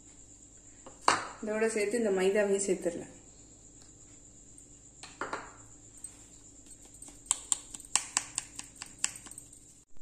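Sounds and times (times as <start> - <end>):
sieve clicking on bowl rim: 7.0 - 9.3.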